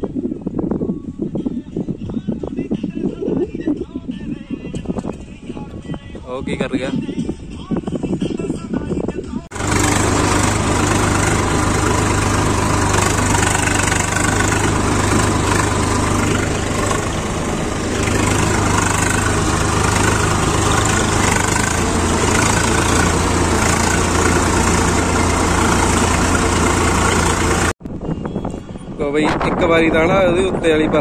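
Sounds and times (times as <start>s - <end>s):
tractor diesel engine running: 9.5s - 27.8s.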